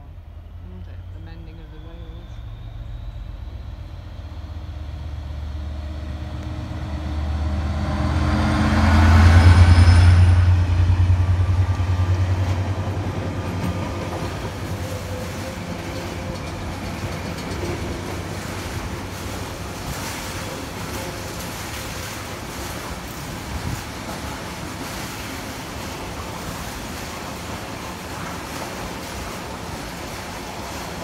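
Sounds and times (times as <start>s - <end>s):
diesel locomotive engine drone: 0.0s - 31.0s
wagons rumbling on track: 0.0s - 31.0s.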